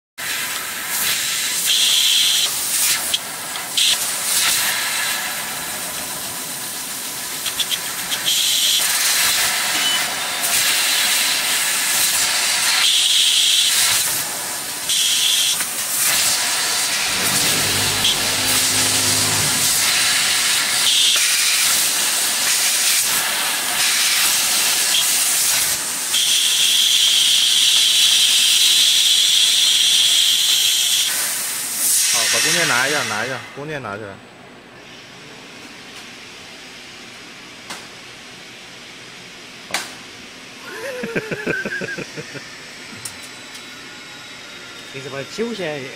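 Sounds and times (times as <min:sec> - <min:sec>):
loud hiss of assist gas: 0:00.2 - 0:33.5
low hum: 0:16.8 - 0:20.8.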